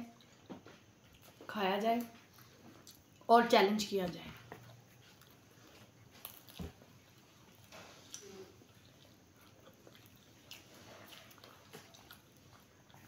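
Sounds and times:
people chewing food: 0:00.0 - 0:13.0.

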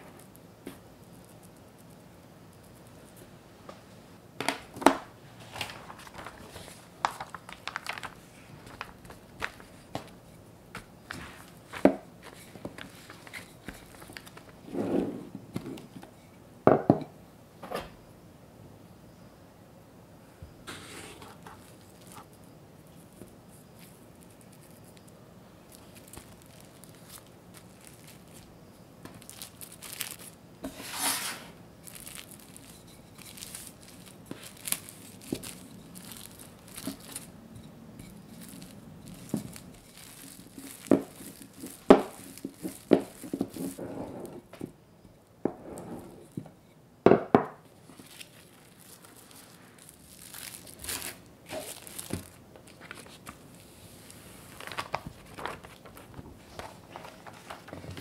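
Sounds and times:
cling film crinkling: 0:05.4 - 0:14.6, 0:21.4 - 0:30.5, 0:31.5 - 0:43.8, 0:47.8 - 0:58.0
rolling pin rolling dough: 0:30.6 - 0:44.7.

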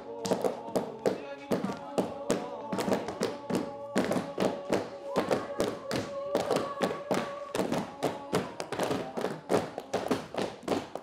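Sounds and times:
thuds and taps on stage floor: 0:00.2 - 0:11.0.

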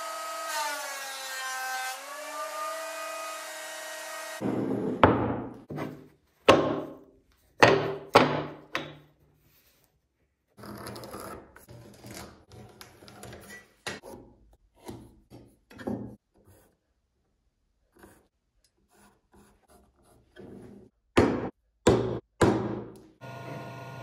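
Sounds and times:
pencil scratching along steel rule: 0:17.9 - 0:20.7.

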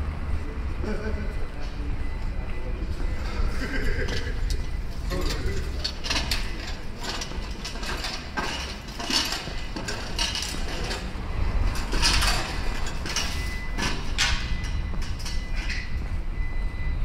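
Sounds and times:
footsteps on stone street: 0:05.8 - 0:16.4.

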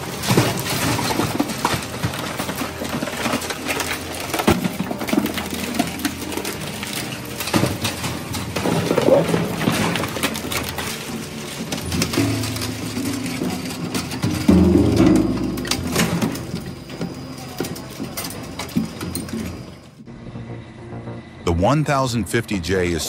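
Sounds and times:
loud sharp metal cracks: 0:00.0 - 0:19.7
shredder tearing metal: 0:00.0 - 0:20.0
low machine hum: 0:12.2 - 0:23.0.

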